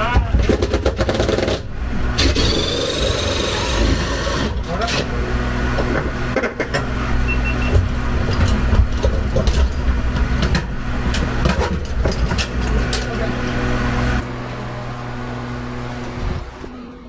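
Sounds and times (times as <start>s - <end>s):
knocks and clicks of tools: 5.8s - 6.9s.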